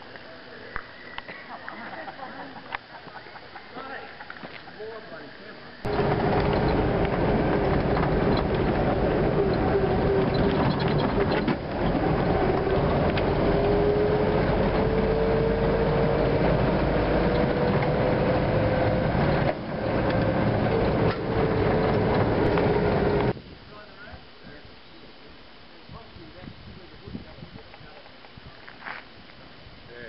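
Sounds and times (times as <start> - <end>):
gear whine rising in pitch: 5.7 - 23.3
clattering rattle: 5.9 - 13.7
truck drivetrain running: 5.9 - 23.4.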